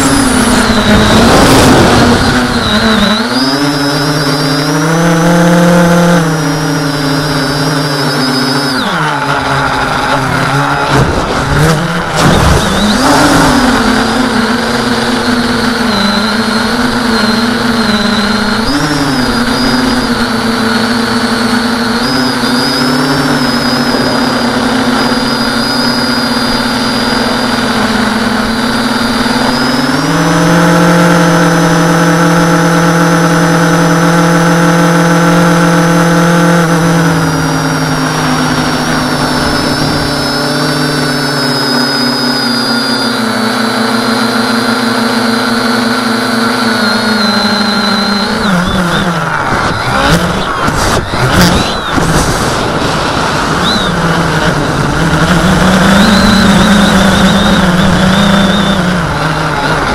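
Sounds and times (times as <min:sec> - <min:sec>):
rush of noise with swooping pitch: 0:00.0 - 0:03.1
drone motors and propellers whining: 0:00.0 - 0:59.9.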